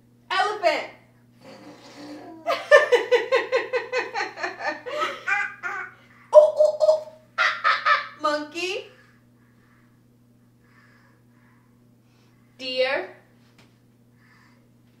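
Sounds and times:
person laughing: 0:02.2 - 0:05.7, 0:06.4 - 0:08.2.

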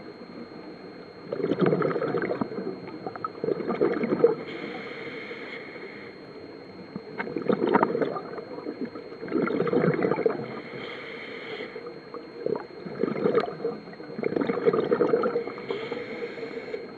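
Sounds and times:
exhaled bubbles gurgling underwater: 0:00.0 - 0:16.9
regulator inhalation hiss: 0:04.4 - 0:06.2, 0:10.5 - 0:11.9, 0:15.5 - 0:16.9.

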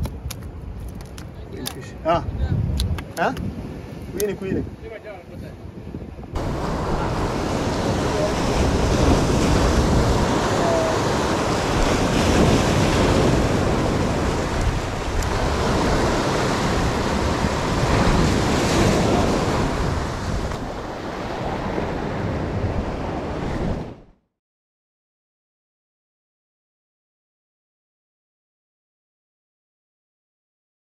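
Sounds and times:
wind buffeting microphone: 0:00.0 - 0:24.1
waves breaking against rocks: 0:06.4 - 0:22.1.

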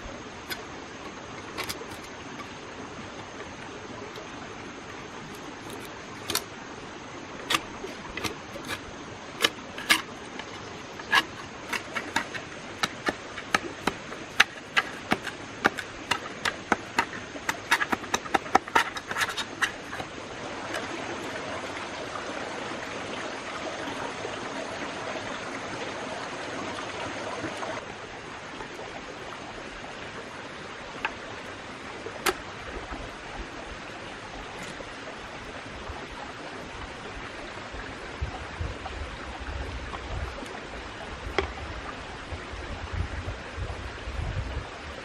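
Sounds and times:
rough scraping: 0:00.4 - 0:02.6, 0:07.4 - 0:20.9
knife cracking into bamboo: 0:01.5 - 0:02.1, 0:05.3 - 0:06.5, 0:07.5 - 0:08.8, 0:09.4 - 0:20.1.

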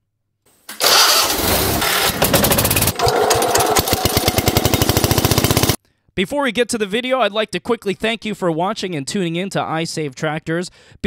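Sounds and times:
small engine running: 0:00.8 - 0:05.8.

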